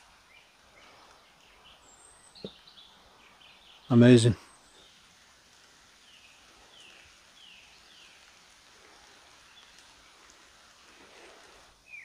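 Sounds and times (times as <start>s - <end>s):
distant bird calling: 0.0s - 12.0s
faint steady hiss: 0.0s - 12.0s.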